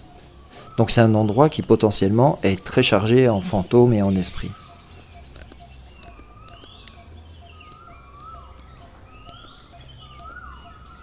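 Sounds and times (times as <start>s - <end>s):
birds calling: 0.0s - 11.0s
steady low hum: 2.1s - 6.5s.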